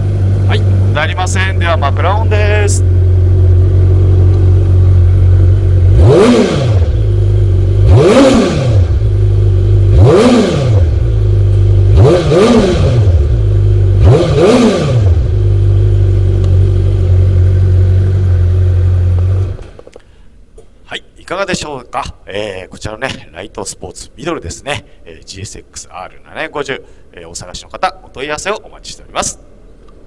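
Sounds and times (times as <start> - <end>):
motorcycle engine revving: 0.0 - 19.8.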